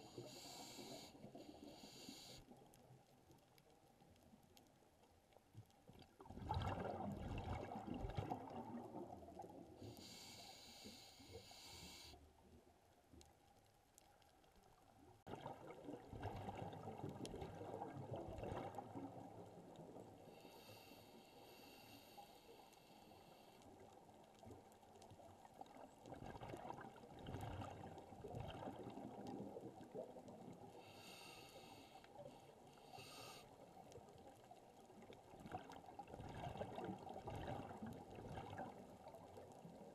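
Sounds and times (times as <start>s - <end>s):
regulator inhalation hiss: 0.1s - 2.4s, 9.8s - 12.2s, 30.9s - 32.0s, 32.9s - 33.5s
gurgling exhaled bubbles: 6.2s - 9.6s, 15.3s - 19.5s, 26.1s - 30.6s, 35.4s - 39.7s.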